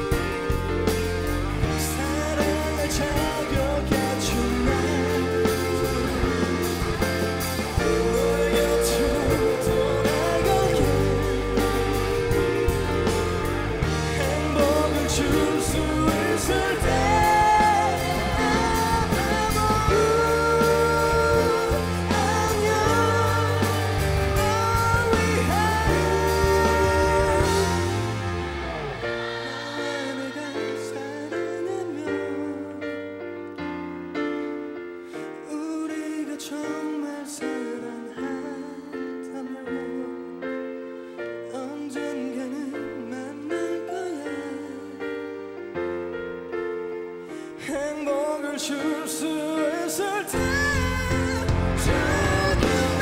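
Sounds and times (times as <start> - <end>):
pop-rock band playing: 0.0 - 34.4, 41.0 - 53.0
man singing long notes: 1.9 - 32.8.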